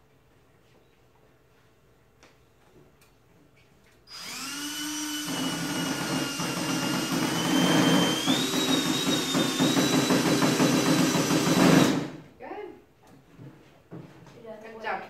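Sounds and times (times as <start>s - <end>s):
cordless drill boring into wood: 4.1s - 12.2s.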